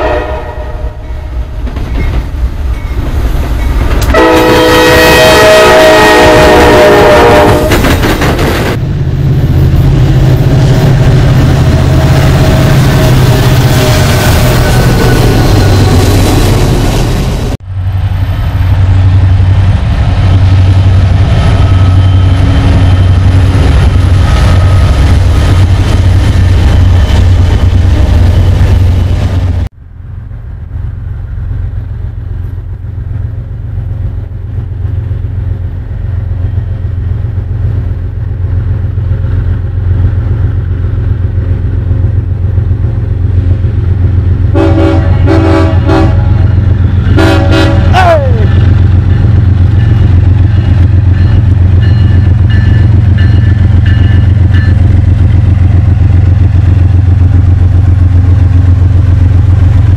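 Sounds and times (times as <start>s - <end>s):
locomotive horn blasts: 0.0s - 1.1s, 4.1s - 7.8s, 44.5s - 48.6s
freight train rumbling: 0.0s - 59.9s.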